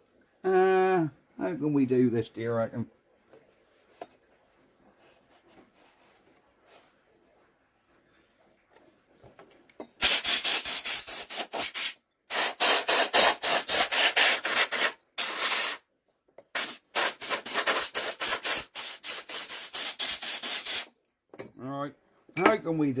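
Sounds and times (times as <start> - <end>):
air blow gun hissing blasts: 10.0 - 15.8, 16.6 - 20.9.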